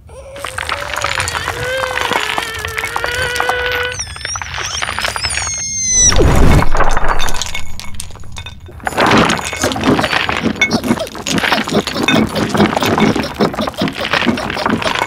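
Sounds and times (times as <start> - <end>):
high wavering whistles: 3.1 - 6.3
scraping and rustling: 6.1 - 15.0.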